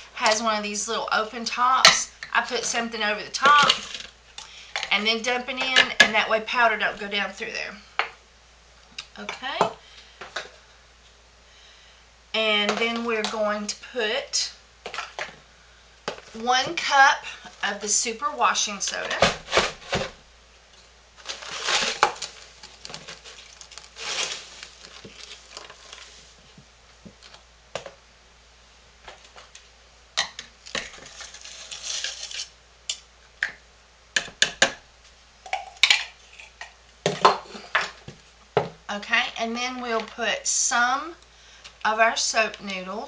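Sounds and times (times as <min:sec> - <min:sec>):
powder pouring with rustling: 0:21.2 - 0:26.5, 0:30.9 - 0:32.5.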